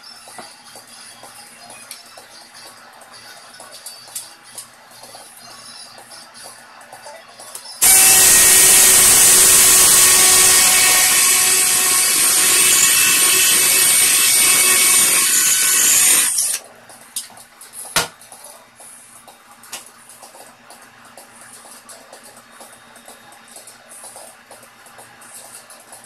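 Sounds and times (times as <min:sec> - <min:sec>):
power drill boring into wood: 0:07.8 - 0:16.6.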